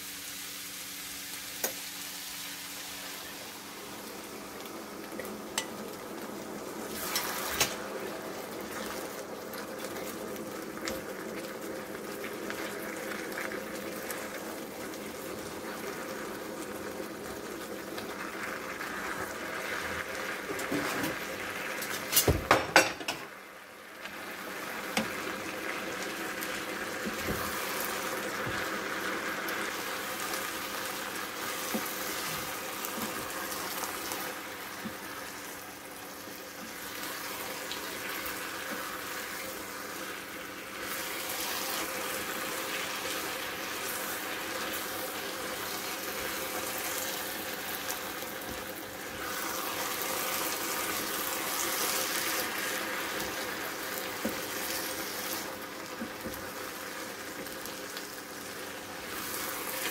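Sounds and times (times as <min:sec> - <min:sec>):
vegetables sizzling in a frying pan: 0:00.0 - 0:59.9.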